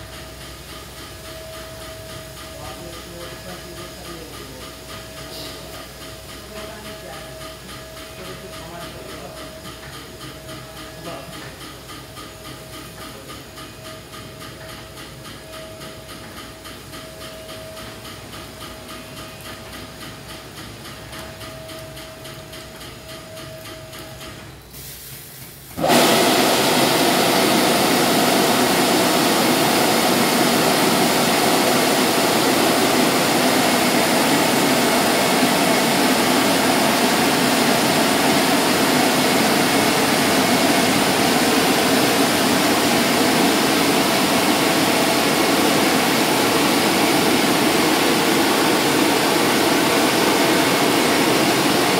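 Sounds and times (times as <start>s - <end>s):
car wash machine ticking: 0.0s - 25.0s, 25.8s - 51.9s
high-pressure water spray: 24.8s - 51.9s
machine whine: 25.8s - 51.9s.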